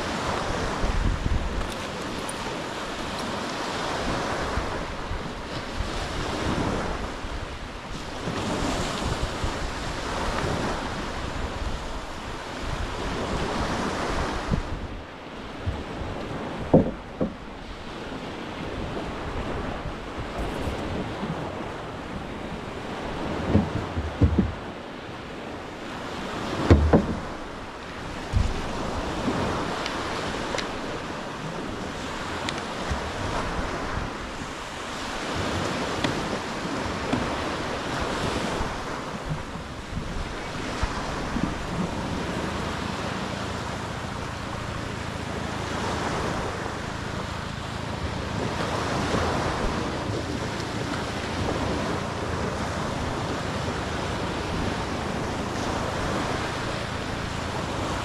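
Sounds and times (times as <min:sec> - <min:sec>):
wind buffeting microphone: 0:00.0 - 0:58.0
sharp knocks: 0:16.7 - 0:17.4, 0:23.5 - 0:24.6, 0:26.6 - 0:27.3
small surf breaking: 0:25.6 - 0:58.0.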